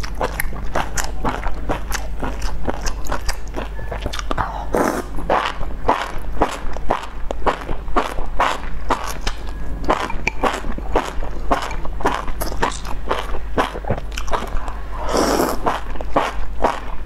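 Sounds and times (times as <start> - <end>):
wet chewing and mouth clicks: 0.0 - 17.0
person slurping noodles: 4.4 - 6.6, 12.4 - 16.8.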